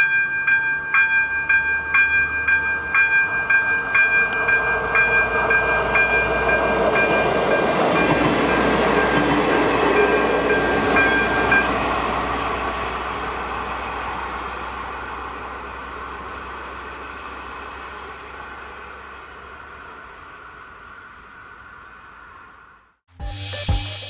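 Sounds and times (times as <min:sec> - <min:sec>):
level crossing warning bell: 0:00.0 - 0:12.1
passenger train running: 0:00.0 - 0:24.0.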